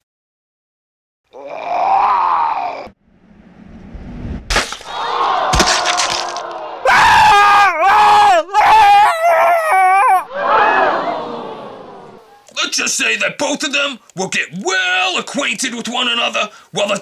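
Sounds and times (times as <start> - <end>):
person screaming in wails: 1.4 - 2.9, 6.9 - 10.3
rising rush of noise: 3.0 - 4.6
sharp crashing impacts: 4.5 - 6.7.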